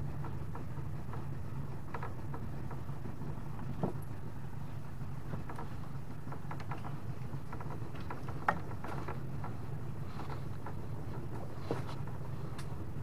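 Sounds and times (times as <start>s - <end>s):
small boat motor running: 0.0s - 13.0s.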